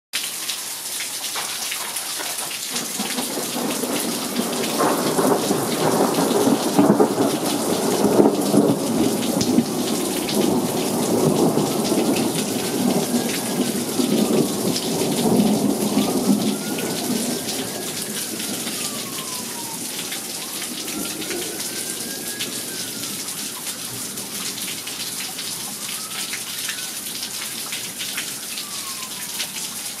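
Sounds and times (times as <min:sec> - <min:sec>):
steady rain falling: 0:00.2 - 0:30.0
distant siren wailing: 0:00.5 - 0:30.0
rolling rumble of thunder: 0:02.7 - 0:23.2.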